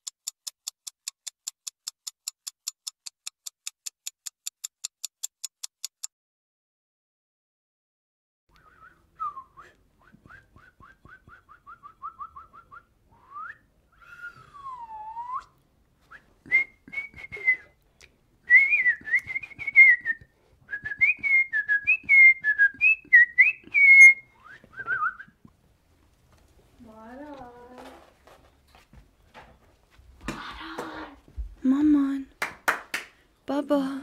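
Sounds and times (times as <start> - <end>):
person whistling: 8.5 - 17.8, 18.5 - 25.4.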